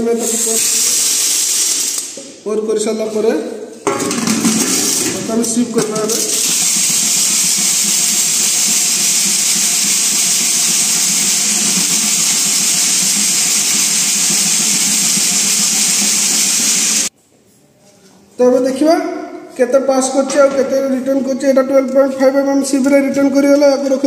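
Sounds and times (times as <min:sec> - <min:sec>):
stones rattling in metal sieves: 0:00.3 - 0:02.2, 0:03.9 - 0:17.1.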